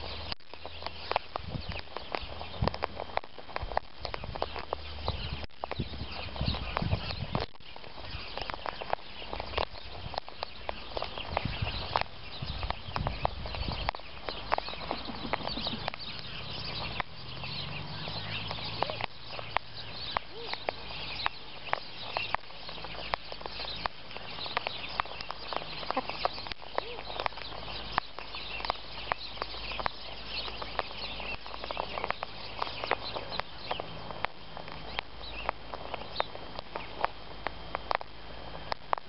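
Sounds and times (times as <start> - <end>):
beaks pecking at seed: 0.0 - 39.0
cockatoo squeaky calls: 17.7 - 22.8, 24.4 - 32.2.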